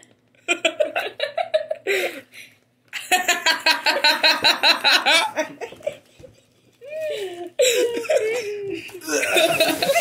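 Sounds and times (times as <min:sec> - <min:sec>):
person laughing: 0:06.9 - 0:10.0.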